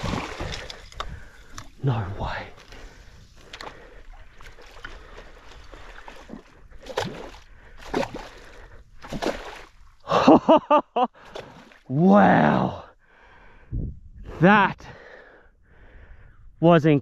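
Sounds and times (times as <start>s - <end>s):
man breathing hard: 0.4s - 1.7s, 2.3s - 6.3s, 7.4s - 9.0s, 13.0s - 13.9s, 14.8s - 16.6s
man laughing breathlessly: 10.0s - 11.3s.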